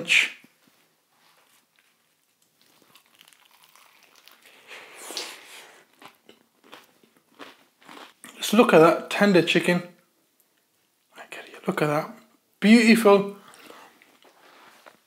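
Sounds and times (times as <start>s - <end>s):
chewing crunches: 1.8s - 8.4s
crunchy bite into fried coating: 2.6s - 8.2s.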